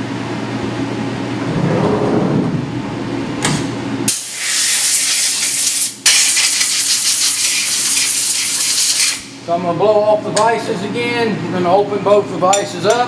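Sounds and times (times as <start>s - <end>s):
compressed air gun hissing: 4.1s - 9.3s.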